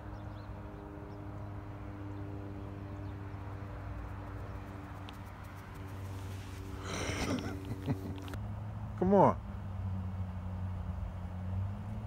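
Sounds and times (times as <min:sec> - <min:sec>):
steady low hum: 0:00.0 - 0:08.4
outdoor background noise: 0:00.0 - 0:12.0.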